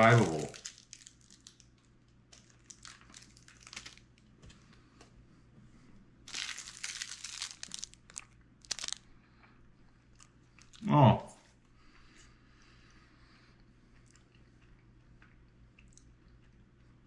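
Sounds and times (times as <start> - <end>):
plastic wrapper crinkling: 0.0 - 4.3, 6.3 - 9.0.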